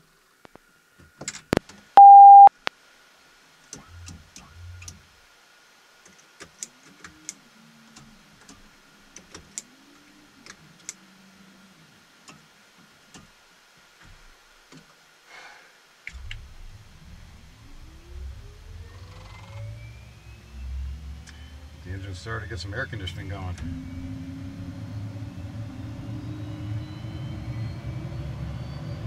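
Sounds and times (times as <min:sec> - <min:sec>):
electronic beep: 0:02.0 - 0:02.5
faint high whine: 0:02.0 - 0:02.5, 0:16.0 - 0:29.0.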